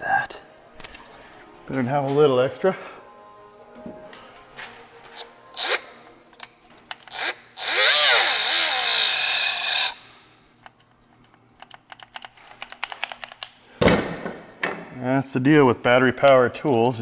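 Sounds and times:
cordless power tool motor: 0:07.1 - 0:10.0.

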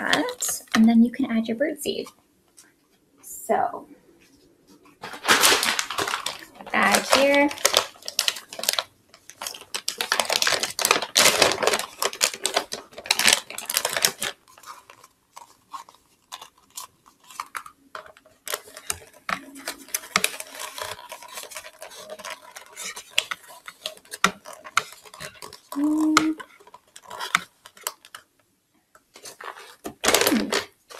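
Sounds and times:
plastic bag rustling: 0:00.0 - 0:01.0, 0:04.9 - 0:28.3, 0:29.1 - 0:30.9
seed pouring into plastic bottle: 0:05.1 - 0:14.8.

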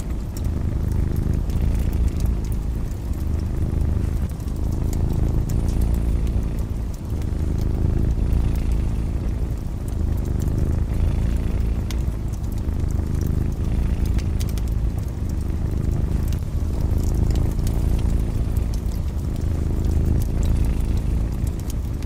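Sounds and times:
cat purring: 0:00.0 - 0:22.0
wood fire crackling: 0:00.0 - 0:22.0.

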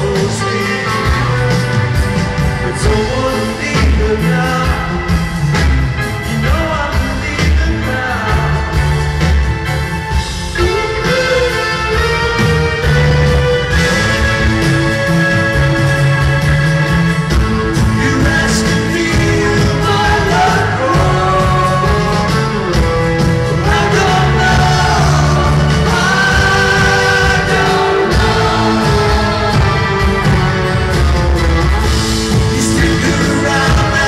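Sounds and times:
man singing lead vocal: 0:00.0 - 0:01.8, 0:02.5 - 0:09.2, 0:17.8 - 0:30.4, 0:32.2 - 0:34.0
live rock band: 0:00.0 - 0:34.0.

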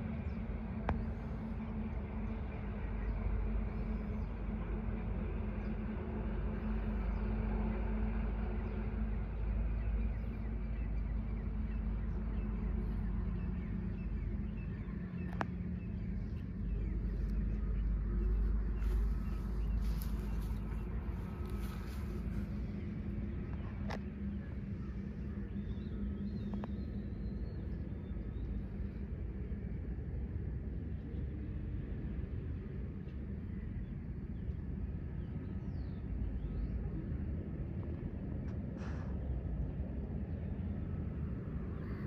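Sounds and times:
distant engine rumbling: 0:00.0 - 0:29.6.

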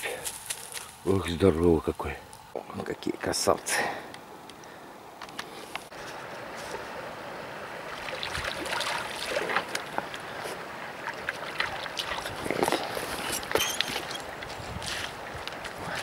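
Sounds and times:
river water flowing: 0:05.9 - 0:15.8
small water splashes: 0:07.8 - 0:12.9.

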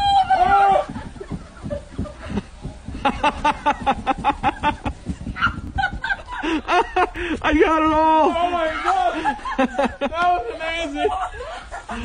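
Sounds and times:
person cackling laughter: 0:05.7 - 0:07.3.

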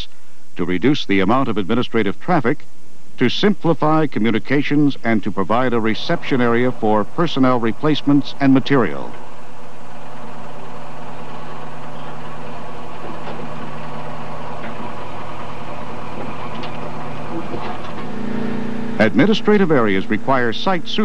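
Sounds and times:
tracked vehicle engine running: 0:05.1 - 0:21.0.

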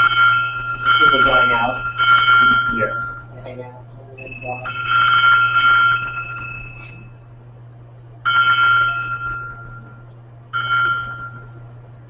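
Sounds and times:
electronic bell-like chimes: 0:00.0 - 0:03.3, 0:04.2 - 0:07.4, 0:08.3 - 0:10.0
steady low hum: 0:00.0 - 0:12.0.

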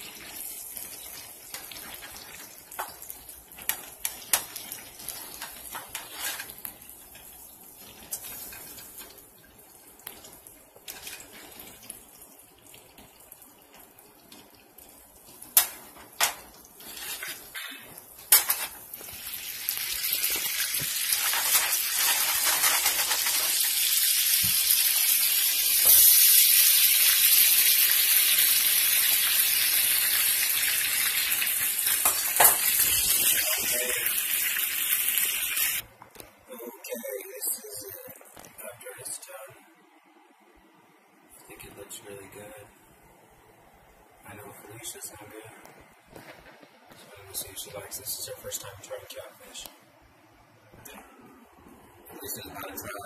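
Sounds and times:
fish sizzling in a pan: 0:00.0 - 0:12.0, 0:14.4 - 0:35.8.

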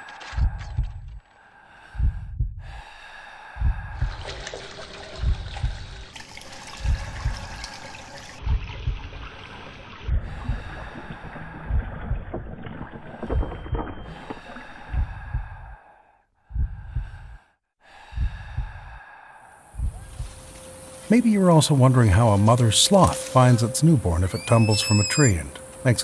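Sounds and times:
heartbeat thumps: 0:00.3 - 0:01.2, 0:01.9 - 0:02.9, 0:03.5 - 0:06.2, 0:06.8 - 0:07.7, 0:08.4 - 0:09.3, 0:10.0 - 0:15.8, 0:16.4 - 0:17.5, 0:18.1 - 0:19.0, 0:19.7 - 0:20.6
sustained tones: 0:20.0 - 0:26.0.

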